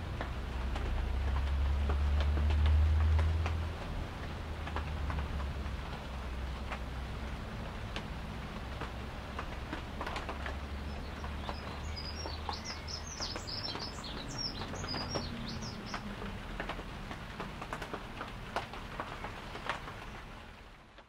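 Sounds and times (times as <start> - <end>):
light clicks and taps: 0.1 - 6.0
small birds chirping: 10.2 - 16.3.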